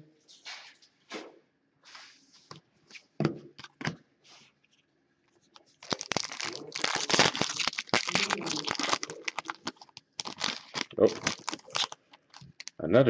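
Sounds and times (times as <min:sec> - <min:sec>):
foil wrapper tearing and crinkling: 0:05.8 - 0:12.8.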